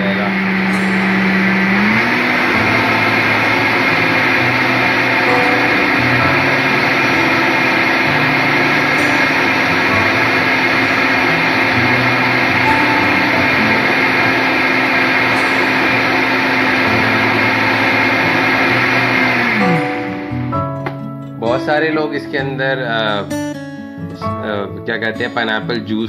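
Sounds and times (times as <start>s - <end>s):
blender running: 0.0s - 20.5s.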